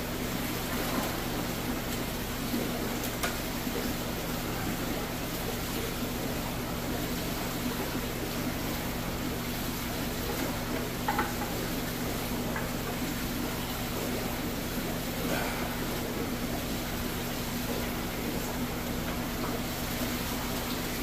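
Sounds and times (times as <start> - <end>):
aquarium pumps humming: 0.0 - 21.0.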